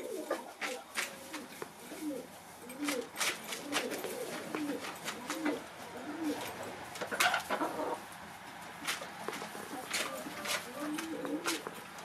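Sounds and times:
hens clucking softly: 3.7s - 8.2s.

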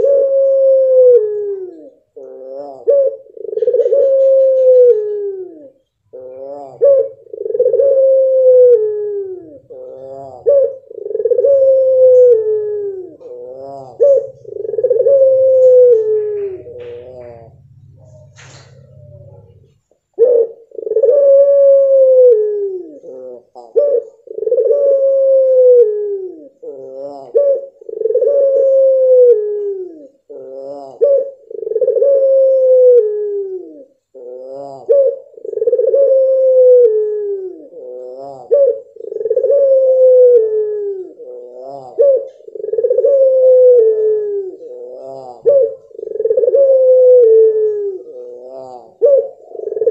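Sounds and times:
dove cooing: 0.0s - 49.9s.

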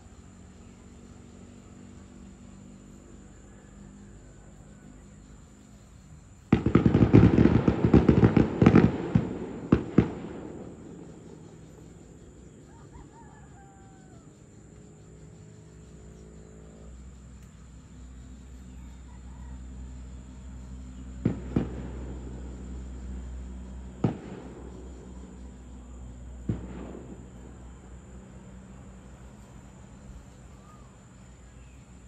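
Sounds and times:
fireworks crackling and popping: 6.5s - 11.0s, 21.2s - 22.4s, 23.9s - 24.8s, 26.4s - 27.6s.

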